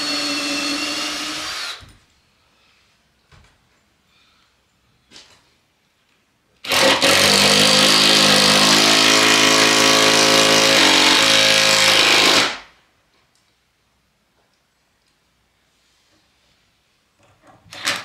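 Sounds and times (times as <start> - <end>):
cordless drill whirring into wood: 0.0 - 1.9.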